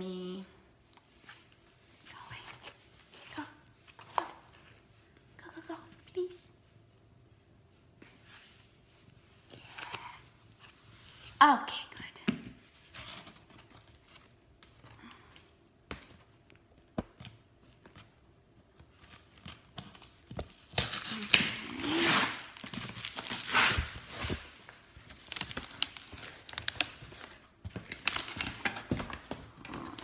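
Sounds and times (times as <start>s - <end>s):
packing tape ripping off cardboard: 19.0s - 30.0s.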